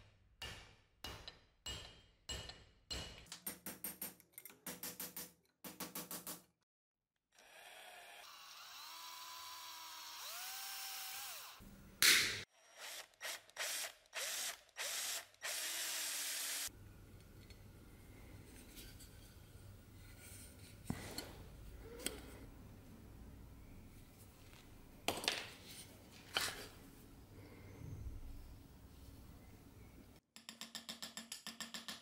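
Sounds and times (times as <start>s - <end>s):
cordless drill drilling metal: 7.4s - 11.6s, 12.6s - 16.7s.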